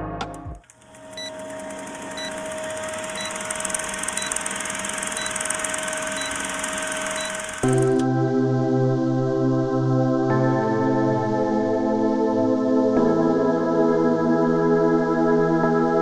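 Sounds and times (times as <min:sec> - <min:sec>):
film projector rattle: 0:00.6 - 0:08.0.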